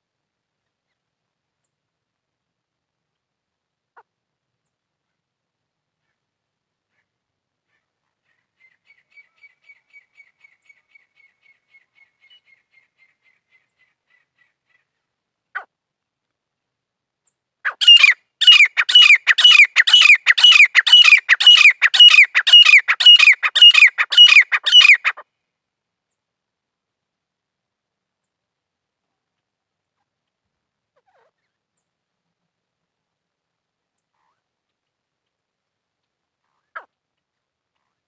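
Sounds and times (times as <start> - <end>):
bird calling repeated falling notes: 17.7 - 25.2.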